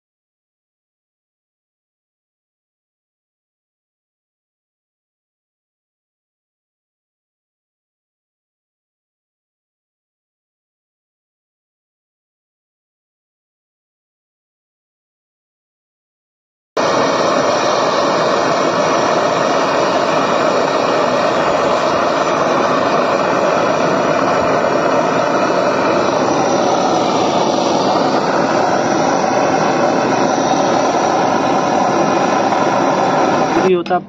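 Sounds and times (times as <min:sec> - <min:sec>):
torch flame rushing: 0:16.8 - 0:34.0.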